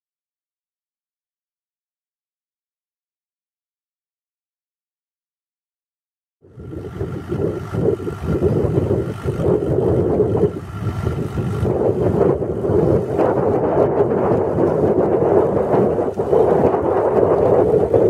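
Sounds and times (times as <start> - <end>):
tractor engine running: 6.5 - 18.0.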